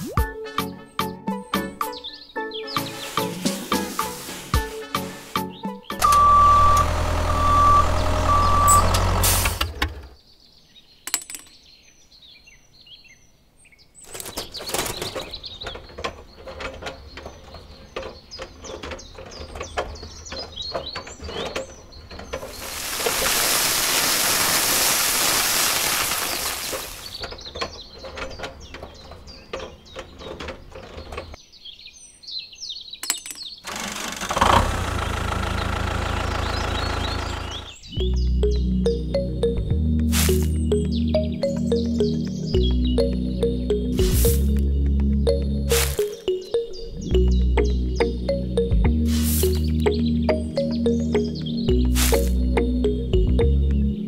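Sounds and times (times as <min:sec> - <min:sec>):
birds chirping: 0:00.0 - 0:54.0
sand pouring: 0:02.7 - 0:05.6, 0:22.4 - 0:27.2, 0:40.1 - 0:40.7, 0:44.0 - 0:44.6, 0:45.7 - 0:46.2, 0:49.0 - 0:49.8, 0:51.9 - 0:52.4
short beeping: 0:06.0 - 0:09.6.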